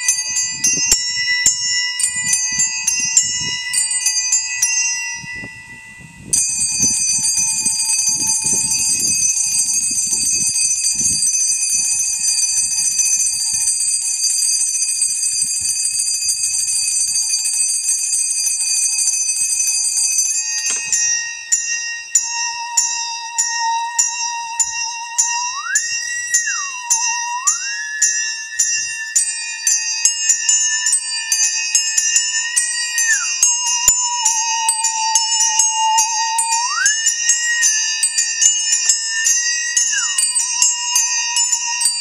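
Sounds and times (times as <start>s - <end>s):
handbells ringing: 0.0s - 42.0s
bowed musical saw note: 5.2s - 13.6s, 22.0s - 29.7s, 32.3s - 42.0s.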